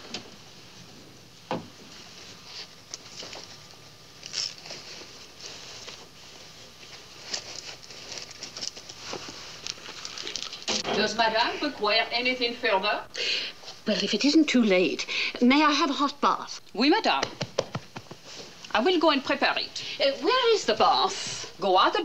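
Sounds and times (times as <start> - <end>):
handbag rustling and clicking: 6.8 - 10.7.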